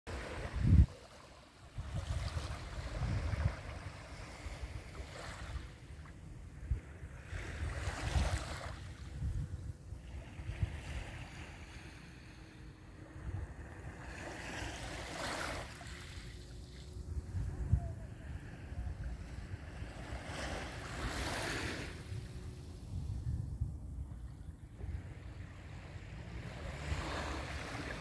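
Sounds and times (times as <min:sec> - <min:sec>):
wind buffeting microphone: 0:00.1 - 0:01.0, 0:01.7 - 0:05.8, 0:06.6 - 0:11.3, 0:16.4 - 0:28.0
small waves lapping on shore: 0:00.1 - 0:23.1, 0:24.1 - 0:28.0.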